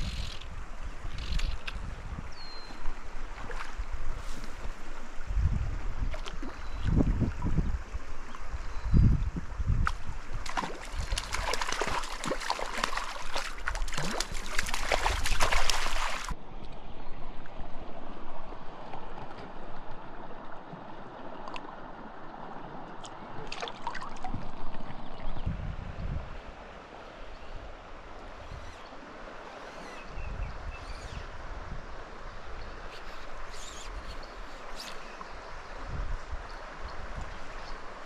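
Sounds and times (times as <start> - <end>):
creek burbling: 0.0 - 25.5
light water splashes: 2.6 - 8.5, 9.7 - 17.9, 18.5 - 25.3
fish thrashing and splashing water: 10.5 - 16.4.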